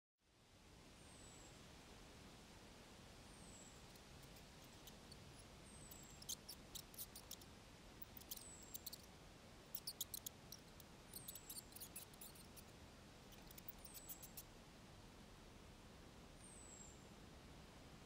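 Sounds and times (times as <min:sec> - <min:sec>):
animal squeaks and chirps: 0:05.8 - 0:07.4, 0:08.0 - 0:09.1, 0:09.7 - 0:12.7, 0:13.3 - 0:14.4.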